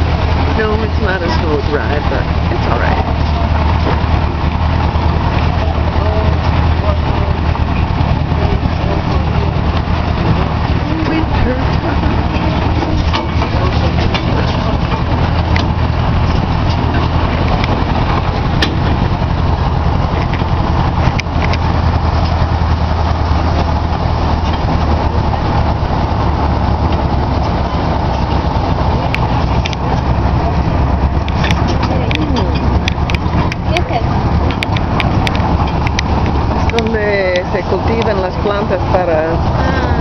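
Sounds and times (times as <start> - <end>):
train engine rumble: 0.0 - 40.0.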